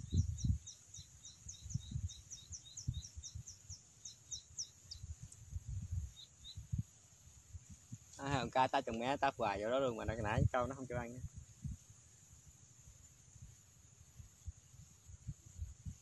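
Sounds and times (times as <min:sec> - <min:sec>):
wind rumble on microphone: 0:00.0 - 0:03.8, 0:04.8 - 0:16.0
bird chirping: 0:00.0 - 0:05.4, 0:06.0 - 0:06.8.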